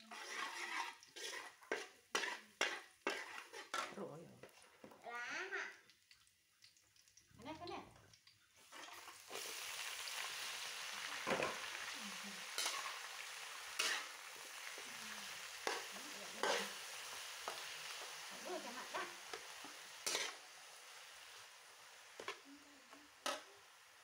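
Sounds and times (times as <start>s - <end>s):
metal spatula scraping wok: 0.0s - 4.6s, 12.4s - 23.6s
greens sizzling in oil: 0.0s - 24.0s.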